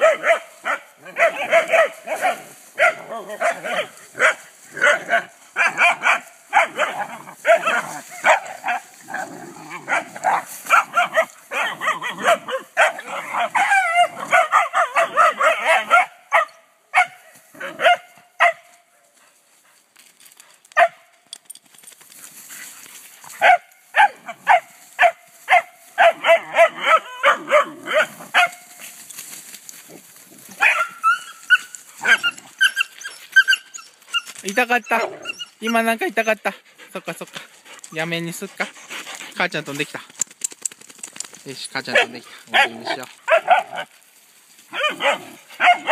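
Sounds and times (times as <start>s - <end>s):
dogs yipping: 0.0s - 8.9s, 9.8s - 18.7s, 23.4s - 28.8s, 30.5s - 36.5s, 41.9s - 43.9s, 44.7s - 45.9s
dogs barking: 0.0s - 18.7s, 20.8s - 21.0s, 23.4s - 28.7s, 30.5s - 33.7s, 41.8s - 43.9s, 44.7s - 45.9s.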